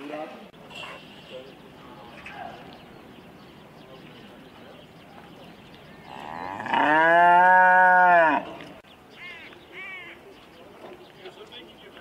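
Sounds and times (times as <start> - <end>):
cow mooing: 6.1 - 8.6.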